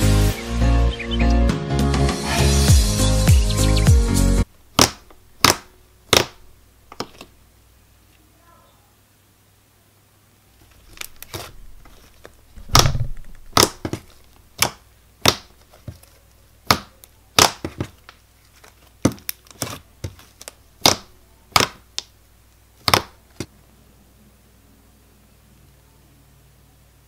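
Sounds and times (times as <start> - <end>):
sticky slime pops and clicks: 12.7 - 14.0, 14.6 - 15.5, 16.7 - 17.8, 20.8 - 22.1, 22.8 - 23.2.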